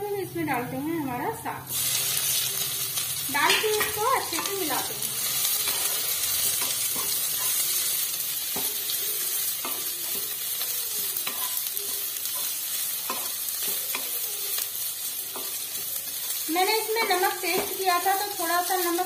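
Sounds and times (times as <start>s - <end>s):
greens sizzling in hot oil: 1.6s - 19.0s
spatula scraping and knocking pan: 5.5s - 7.9s, 9.6s - 10.4s, 11.2s - 14.2s.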